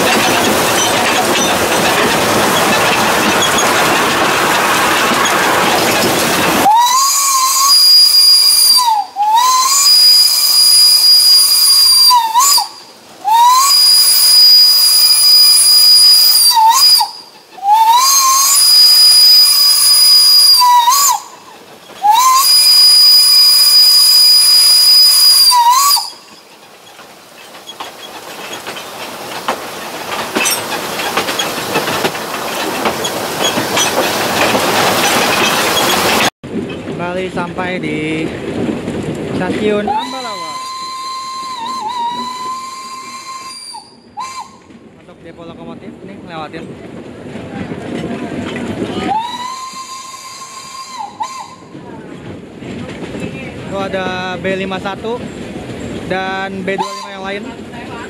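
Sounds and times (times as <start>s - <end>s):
steam hiss: 0.0s - 36.3s
steam locomotive whistle: 6.6s - 26.3s, 39.9s - 44.7s, 49.0s - 51.7s, 56.7s - 57.4s.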